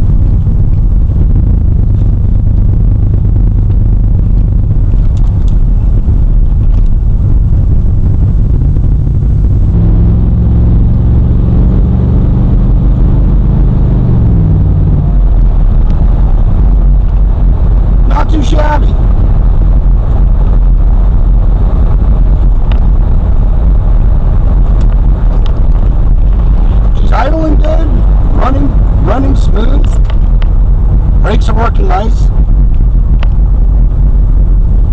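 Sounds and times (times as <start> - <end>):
engine hum: 0.0 - 34.9
road and engine rumble: 0.0 - 34.9.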